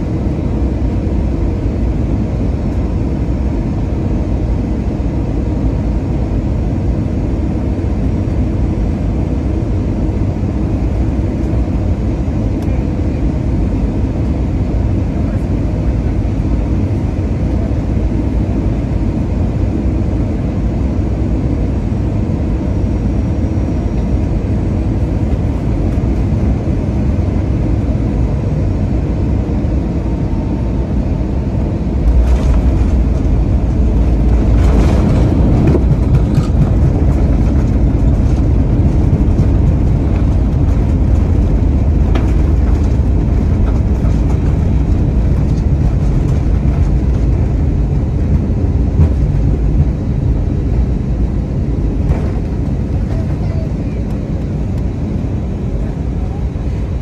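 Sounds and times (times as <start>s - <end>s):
airliner cabin rumble: 0.0s - 57.0s.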